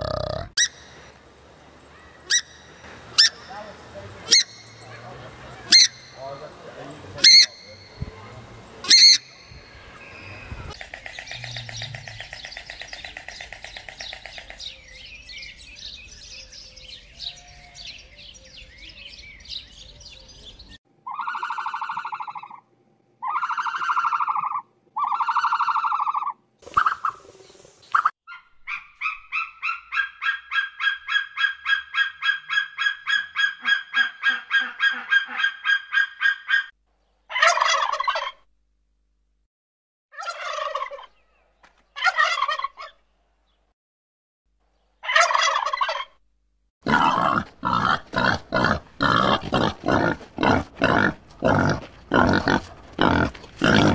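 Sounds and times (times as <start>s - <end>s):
birds calling: 0.0s - 22.6s, 23.2s - 38.4s, 46.9s - 53.9s
loud drawn-out bird calls: 4.3s - 6.5s, 7.2s - 8.1s, 8.8s - 22.6s, 27.9s - 38.4s
turkey gobbling: 7.2s - 7.7s, 21.1s - 22.6s, 23.2s - 27.2s, 28.0s - 36.7s, 37.3s - 38.4s, 40.2s - 41.2s, 42.0s - 43.0s, 45.0s - 46.2s.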